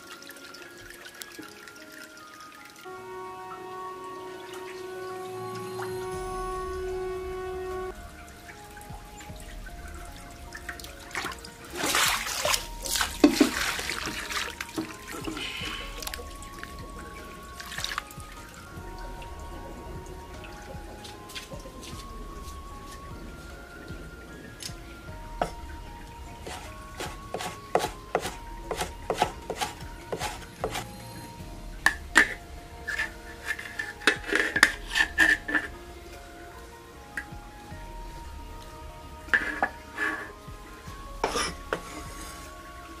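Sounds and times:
water splashing in basin: 0.0s - 36.4s
soft background music: 0.0s - 43.0s.

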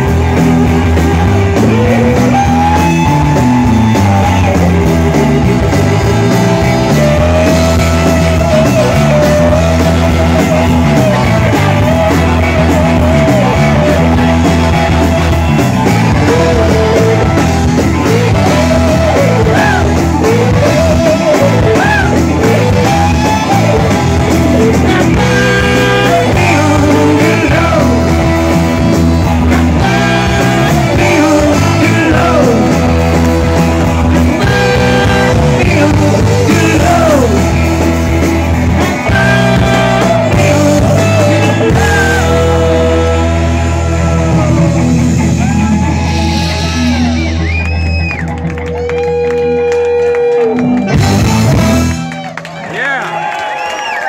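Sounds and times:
person singing: 0.0s - 47.4s
drums: 0.0s - 54.0s
electric guitar: 0.0s - 54.0s.

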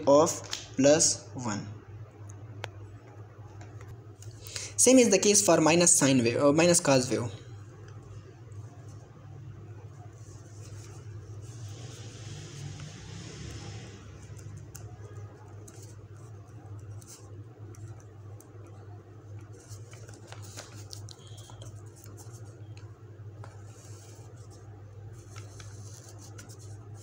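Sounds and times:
steady low hum: 0.0s - 27.0s
ballpoint pen scratching on paper: 10.1s - 22.8s, 23.4s - 27.0s.

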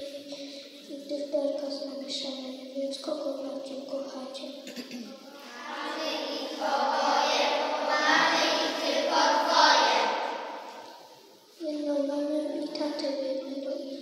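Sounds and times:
children singing together: 5.4s - 11.1s.

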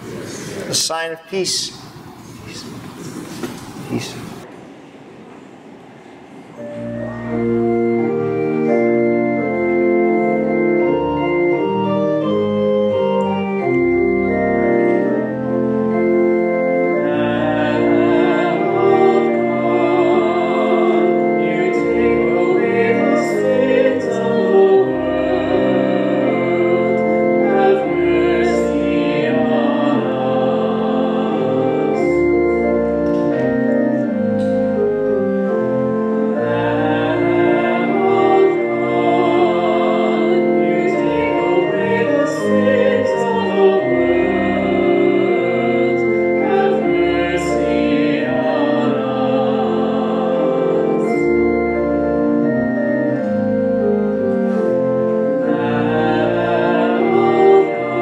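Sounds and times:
church organ chords: 6.6s - 58.0s
person singing with vibrato: 16.9s - 32.3s, 36.3s - 51.5s, 55.4s - 58.0s.

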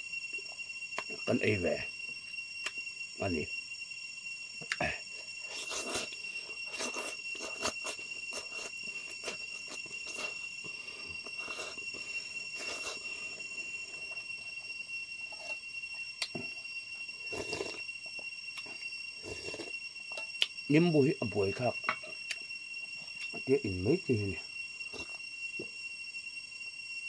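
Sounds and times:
steady high-pitched tone: 0.0s - 27.0s
man slurping and chewing: 5.4s - 10.4s, 11.2s - 13.4s, 17.3s - 17.8s, 19.3s - 19.7s.

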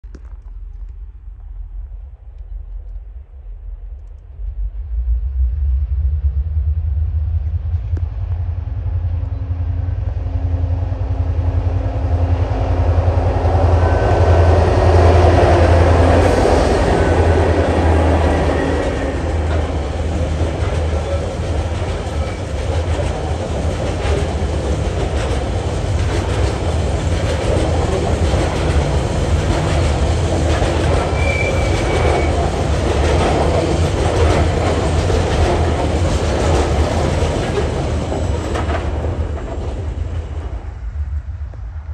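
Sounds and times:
diesel locomotive engine: 3.8s - 41.9s
wagons rumbling: 12.5s - 41.0s
wheels clicking over rail joints: 18.2s - 40.6s.

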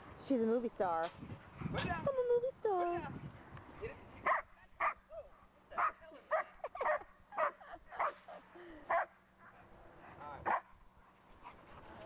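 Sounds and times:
dog barking: 4.2s - 5.0s, 5.8s - 8.2s.

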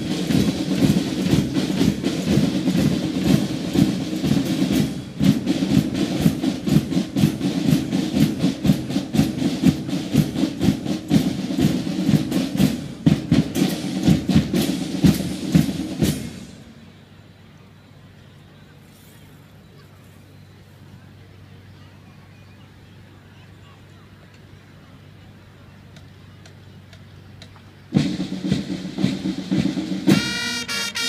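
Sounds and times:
drums beating fast rhythm: 0.0s - 16.7s, 25.9s - 31.0s
marching band playing: 0.0s - 17.2s, 26.8s - 31.0s.

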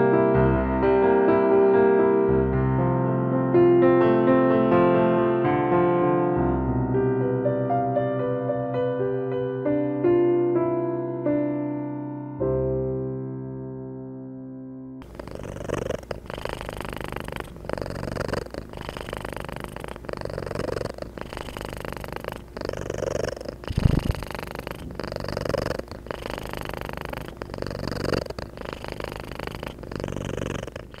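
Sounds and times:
cat purring: 15.0s - 31.0s.

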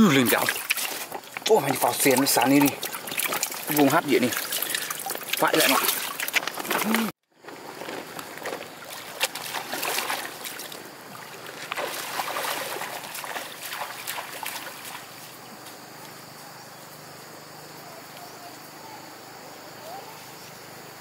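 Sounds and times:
wading splashing in water: 0.0s - 15.8s
faint high insect drone: 6.8s - 21.0s.

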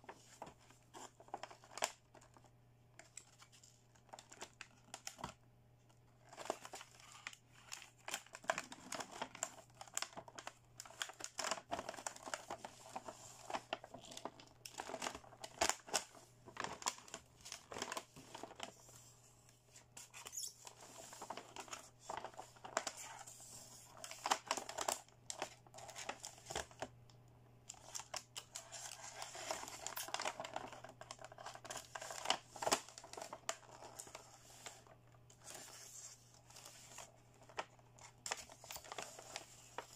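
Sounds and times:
plastic wrapping crinkling and tearing: 6.2s - 18.9s, 20.1s - 26.9s, 27.7s - 39.9s.

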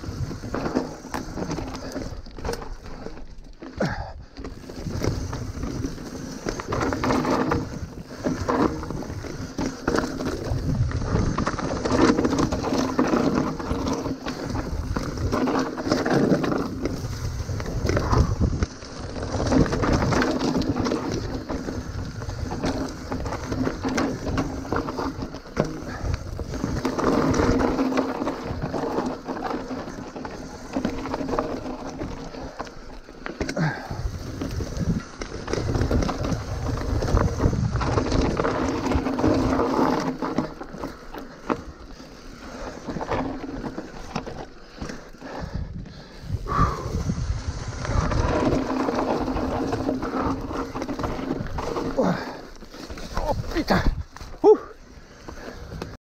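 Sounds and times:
bike rattling and knocking: 0.0s - 56.0s
bike tyres on dirt and stones: 0.0s - 56.0s.

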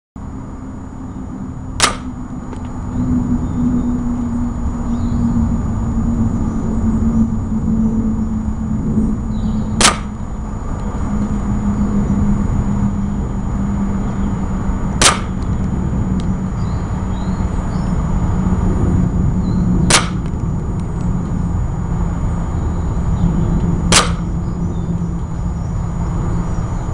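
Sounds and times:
faint hum: 0.2s - 26.9s
low rumble: 0.2s - 26.9s
gunshots: 1.8s - 2.1s, 9.8s - 10.2s, 15.0s - 15.4s, 19.9s - 20.2s, 23.9s - 24.3s.

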